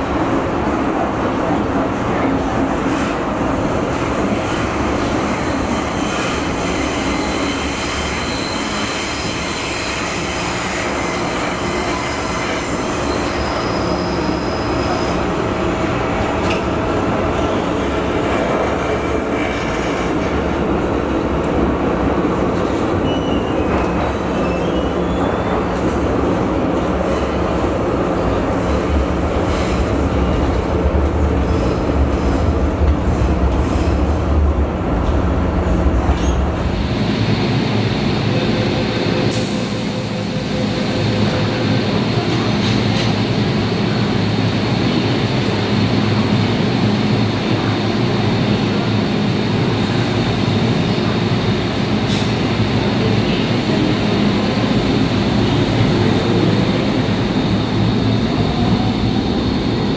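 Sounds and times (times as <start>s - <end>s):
subway train running rumble: 0.0s - 59.9s.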